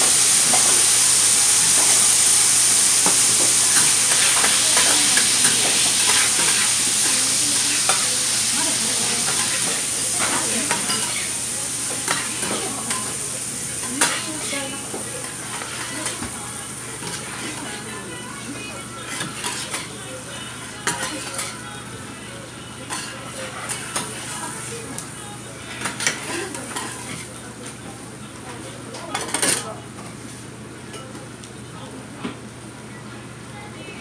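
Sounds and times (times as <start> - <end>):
food sizzling on griddle: 0.0 - 27.4
metal spatulas scraping: 4.1 - 6.7.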